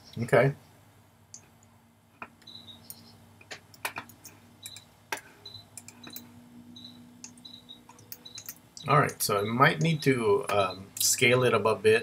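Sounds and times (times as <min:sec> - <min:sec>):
faint steady hum: 0:00.0 - 0:12.0
mouse and keyboard clicks: 0:05.8 - 0:06.3.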